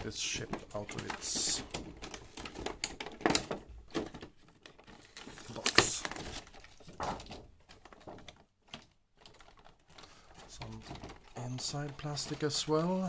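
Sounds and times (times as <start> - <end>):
plastic packaging crinkling: 0.0 - 13.0.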